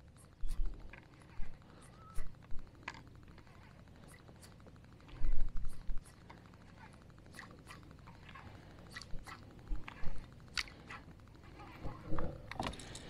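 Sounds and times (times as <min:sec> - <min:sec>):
fishing reel ticking: 0:00.0 - 0:13.0
rod and line clicks and snaps: 0:08.8 - 0:11.1.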